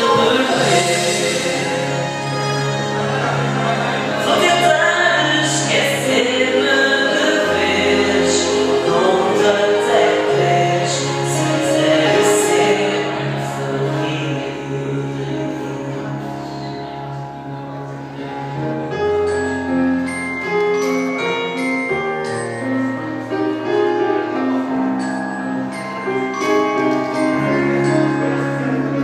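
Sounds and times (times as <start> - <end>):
woman singing into a microphone: 0.0 - 2.4, 4.2 - 16.1
backing music: 0.0 - 29.0.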